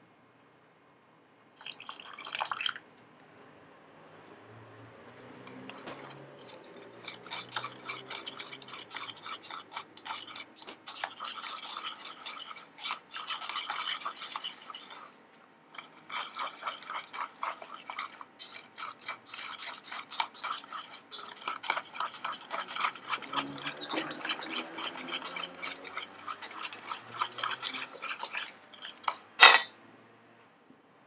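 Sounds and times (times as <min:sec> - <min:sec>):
whisk scraping metal bowl: 0:05.2 - 0:29.7.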